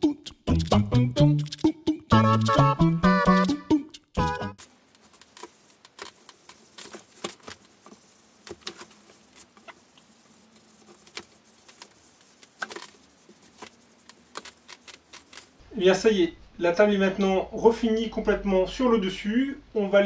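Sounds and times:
cloth pad rubbing wood: 0:05.1 - 0:15.6.

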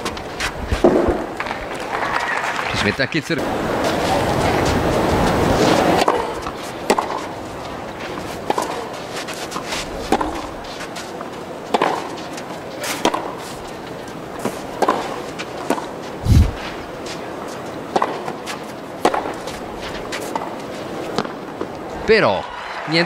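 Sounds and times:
tennis rackets hitting ball: 0:00.0 - 0:02.0, 0:03.8 - 0:21.8
applause: 0:01.4 - 0:03.3, 0:22.2 - 0:23.0.

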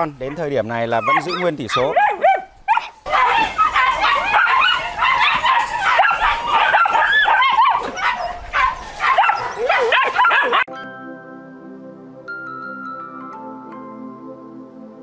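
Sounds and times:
puppies yipping and barking: 0:00.2 - 0:10.7.

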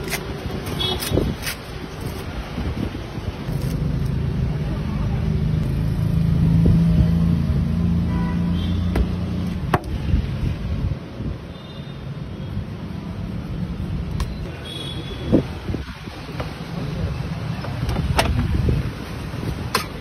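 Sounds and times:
vehicle engine passing by: 0:04.2 - 0:08.1.

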